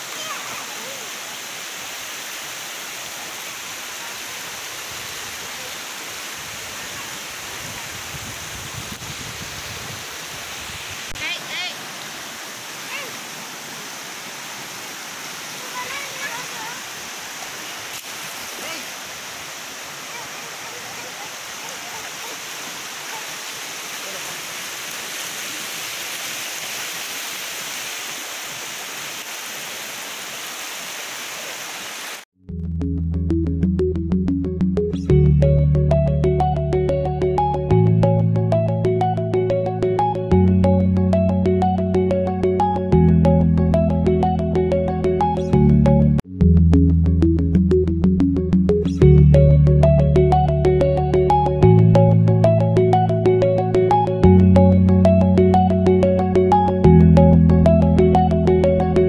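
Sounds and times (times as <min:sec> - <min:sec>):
floodwater rushing: 0:00.0 - 0:32.2.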